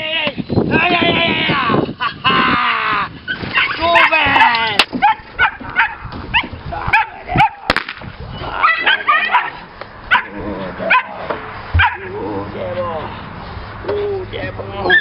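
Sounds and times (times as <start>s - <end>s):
puppies yipping and barking: 3.3s - 7.6s, 8.4s - 12.2s.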